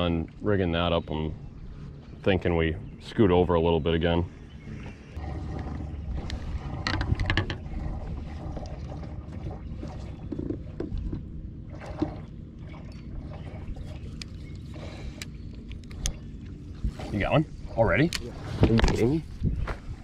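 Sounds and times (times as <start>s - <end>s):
steady low rumble: 0.0s - 20.0s
fishing gear clicks and knocks: 6.8s - 7.7s.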